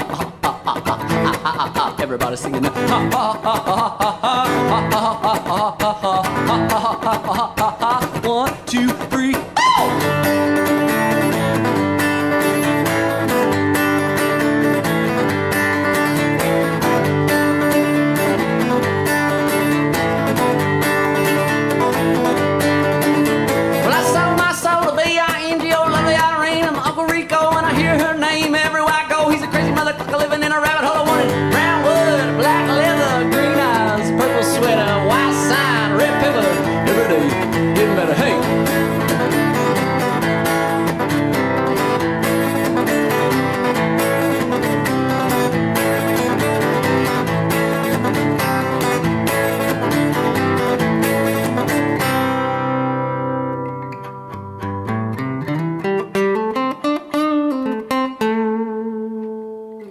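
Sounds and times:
wordless vocal melody: 0:00.0 - 0:10.1, 0:29.2 - 0:40.3
acoustic guitar strumming: 0:00.0 - 0:59.9.

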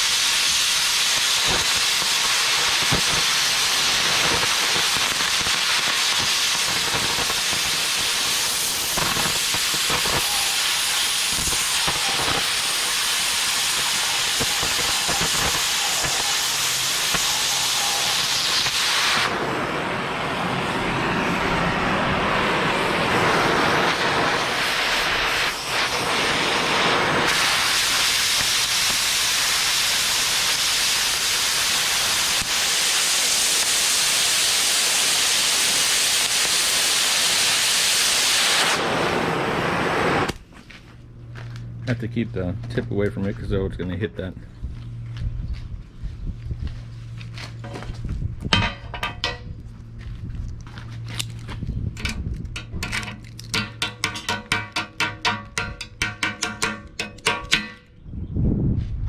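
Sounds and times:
cutting torch hissing: 0:00.0 - 0:40.4.

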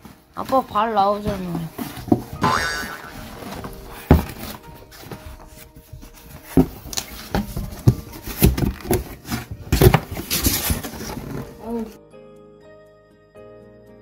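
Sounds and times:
cardboard box knocks and bumps: 0:00.0 - 0:11.6.

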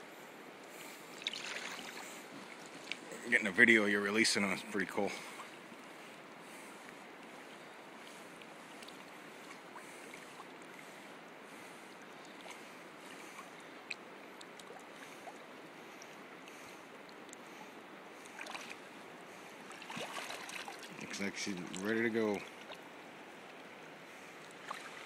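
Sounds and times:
water splashing: 0:01.2 - 0:03.4, 0:18.2 - 0:23.6, 0:24.4 - 0:25.0
river current rushing: 0:14.8 - 0:25.0.

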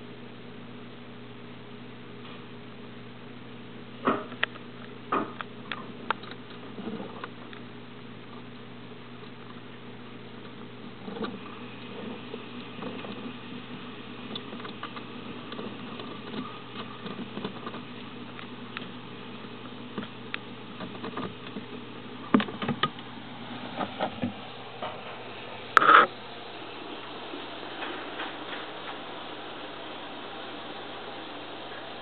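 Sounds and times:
faint clicks and light taps: 0:14.3 - 0:23.0.

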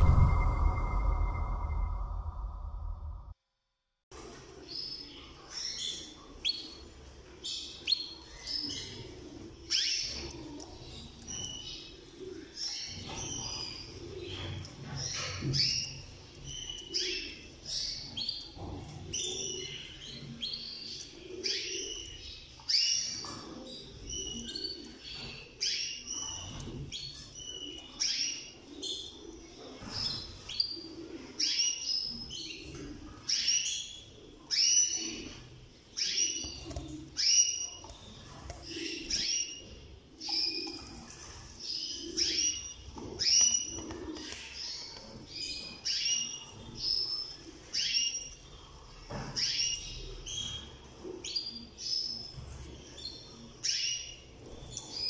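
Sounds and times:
canaries chirping: 0:04.6 - 0:55.0.

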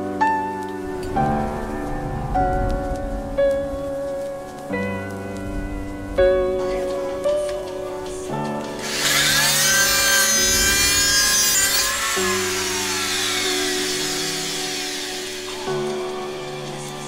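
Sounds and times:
grinding scraping: 0:08.7 - 0:17.0
rotary tool motor whine: 0:08.8 - 0:17.0.

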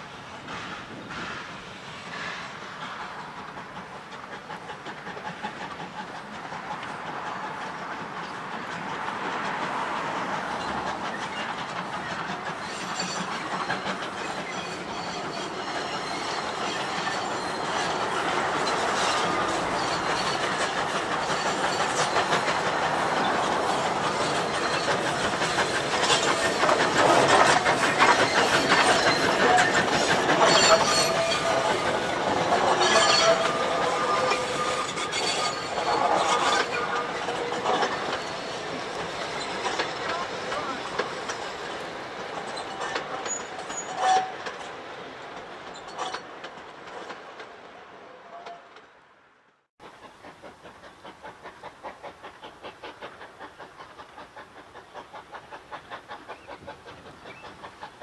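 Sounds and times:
steam locomotive passing: 0:00.0 - 0:58.0
wheels clacking over rail joints: 0:00.4 - 0:49.0
wheels squealing: 0:08.2 - 0:44.8.

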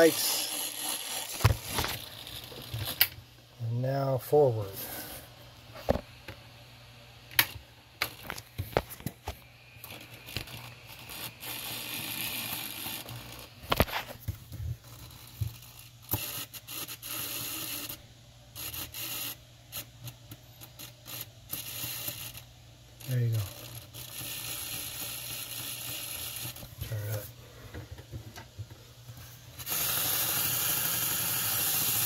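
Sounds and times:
steady high hiss: 0:00.0 - 0:00.6
steady low hum: 0:00.0 - 0:32.0.

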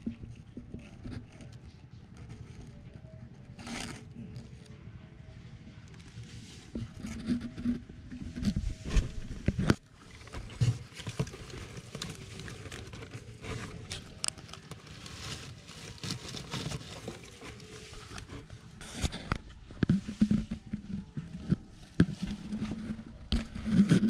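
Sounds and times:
rabbits moving about: 0:06.0 - 0:24.0.

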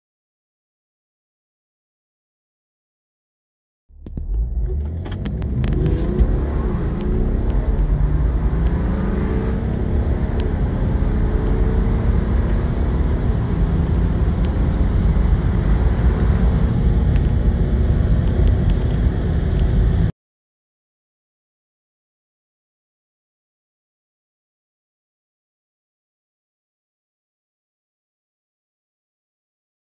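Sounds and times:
car engine accelerating: 0:03.9 - 0:20.1.

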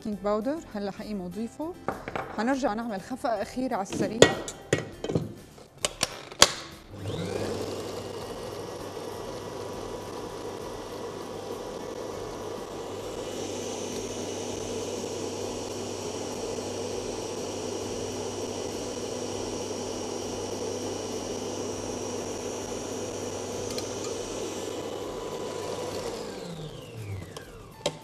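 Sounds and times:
stand mixer motor whirring: 0:06.0 - 0:28.0.

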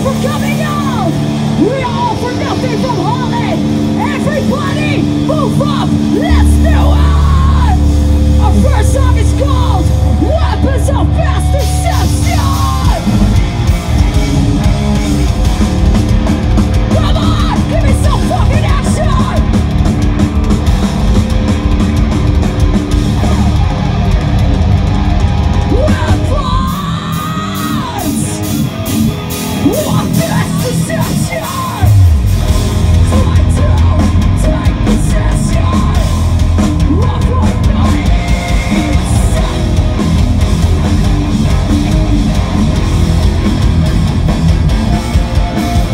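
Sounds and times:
person yelling: 0:00.0 - 0:13.2, 0:16.9 - 0:19.5, 0:25.6 - 0:28.5, 0:29.6 - 0:32.1
distorted guitars: 0:00.0 - 0:45.9
drums: 0:00.0 - 0:45.9.

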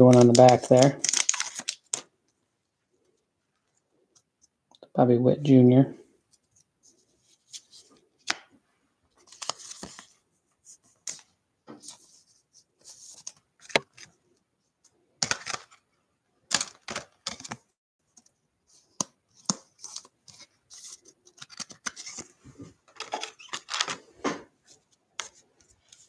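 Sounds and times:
plastic sleeve crinkling: 0:00.0 - 0:02.1.

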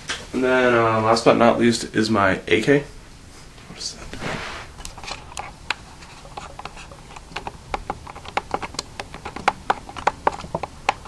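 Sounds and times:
handling clicks and taps: 0:04.8 - 0:11.0.

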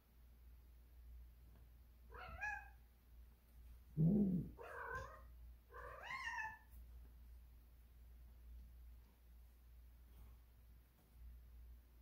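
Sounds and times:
cat meowing and yowling: 0:02.1 - 0:02.8, 0:05.8 - 0:06.6.

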